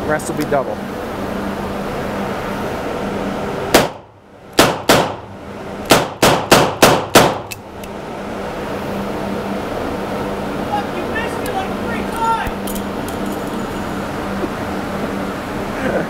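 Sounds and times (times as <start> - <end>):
revolver gunshots: 3.7 - 5.3, 5.9 - 7.5.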